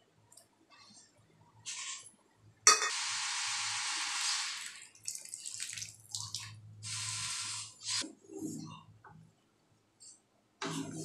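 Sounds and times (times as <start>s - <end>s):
liquid pouring into pan: 4.3s - 6.6s
liquid splashing: 4.7s - 6.6s.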